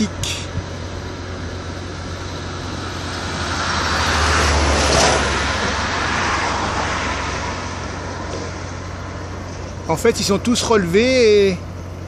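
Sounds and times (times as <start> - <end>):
vehicle driving past: 1.4 - 9.8.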